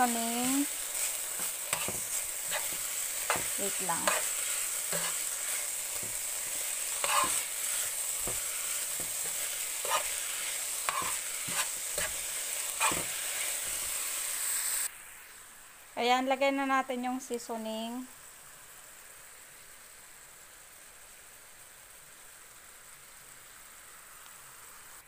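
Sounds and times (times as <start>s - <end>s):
utensil scraping a pan: 0.0s - 14.0s
food sizzling in a frying pan: 0.0s - 25.0s.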